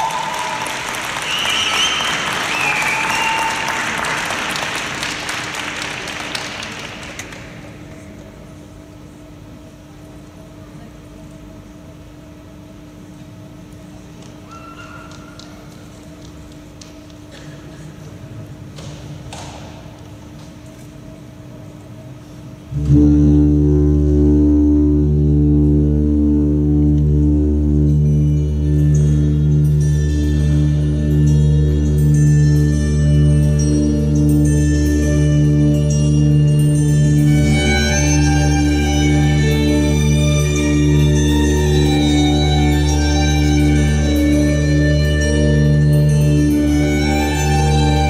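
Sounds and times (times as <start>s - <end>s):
high-pitched cheers: 0.0s - 4.6s
crowd applauding: 0.0s - 8.0s
ice rink ambience: 0.0s - 48.0s
music with sustained low notes: 22.6s - 48.0s.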